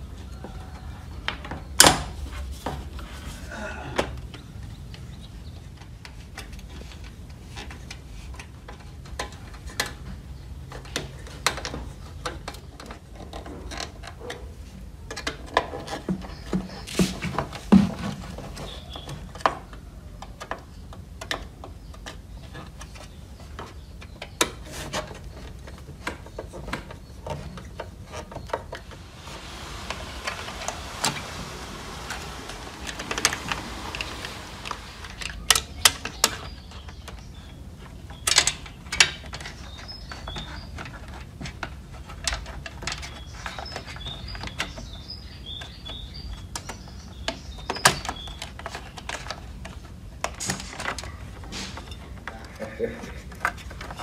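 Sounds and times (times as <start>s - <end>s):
rubbing and scraping: 24.4s - 37.0s
clicks and knocks of parts: 37.8s - 44.8s.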